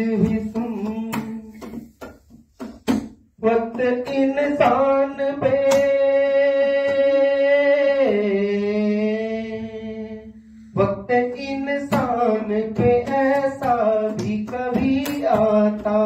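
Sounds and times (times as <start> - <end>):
man singing slow song: 0.0 - 1.9, 3.4 - 16.0.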